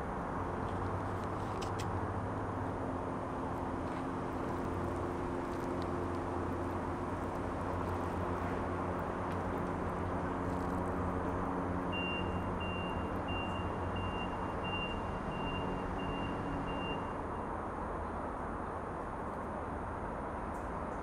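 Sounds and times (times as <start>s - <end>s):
reversing alarm beeping: 11.9s - 17.2s.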